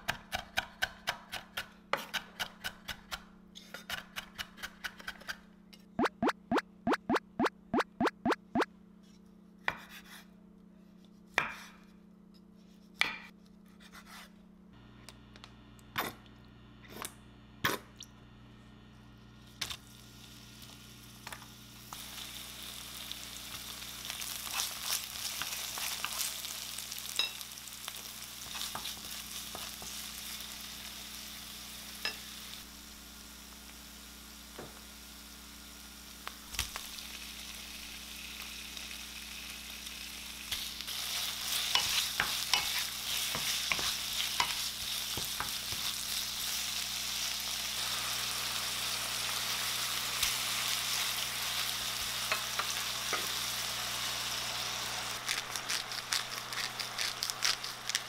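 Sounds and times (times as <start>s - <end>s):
food sizzling in oil: 19.6s - 58.0s.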